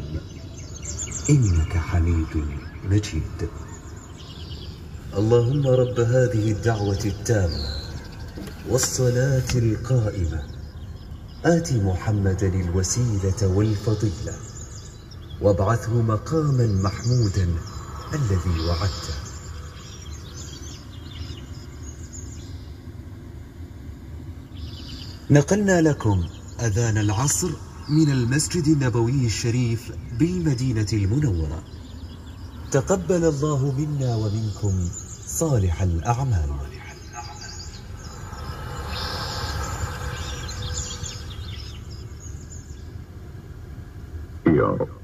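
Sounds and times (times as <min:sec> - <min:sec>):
car engine idling: 0:00.0 - 0:44.8
faint bird chirps: 0:00.0 - 0:45.0
steady low hum: 0:00.0 - 0:45.0.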